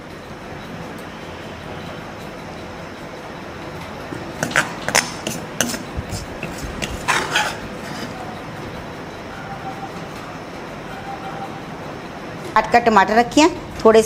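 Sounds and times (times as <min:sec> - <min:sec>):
metal spoon clinking on a dish: 0:04.4 - 0:08.4.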